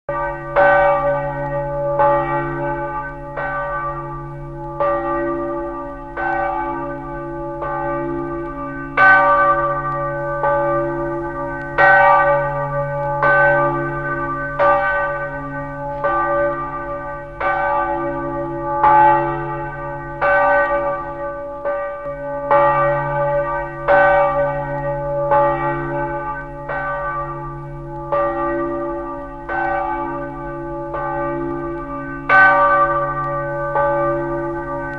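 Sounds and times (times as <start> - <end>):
church bells pealing: 0.1 - 34.9.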